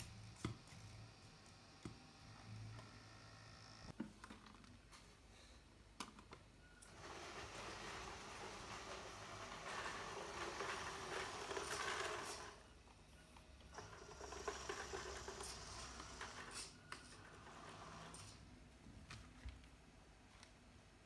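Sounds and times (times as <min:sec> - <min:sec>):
toy tractor motor whirring: 0:06.8 - 0:12.6, 0:13.7 - 0:18.4.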